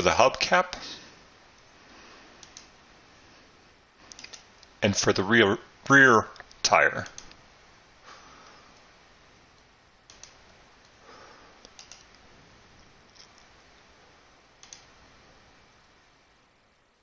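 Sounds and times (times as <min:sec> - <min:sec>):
low steady hiss: 0:00.0 - 0:17.0
computer mouse clicks: 0:02.4 - 0:02.7, 0:04.0 - 0:04.8, 0:06.4 - 0:07.4, 0:09.6 - 0:11.0, 0:11.6 - 0:12.2, 0:14.6 - 0:14.9.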